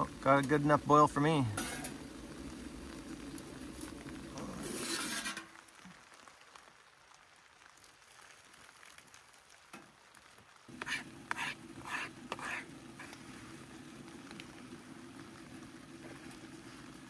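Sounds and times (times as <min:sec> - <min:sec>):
hot water pouring: 0:00.0 - 0:09.6, 0:10.7 - 0:17.0
spork scraping and stirring: 0:10.7 - 0:13.2.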